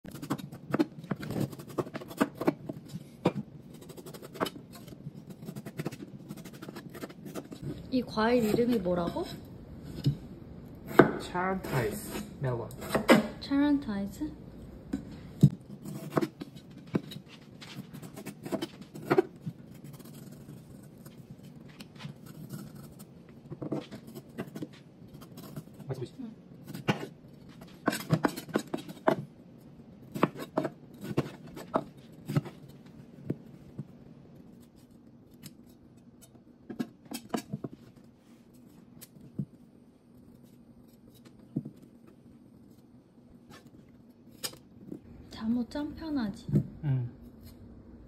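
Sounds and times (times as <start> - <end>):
knife cutting melon rind: 0.1 - 10.2, 14.9 - 29.3, 30.0 - 33.8
knife slicing melon rind: 30.0 - 32.8.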